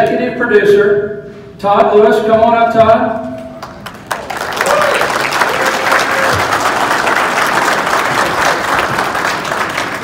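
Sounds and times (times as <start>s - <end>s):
audience applauding: 3.6s - 10.0s.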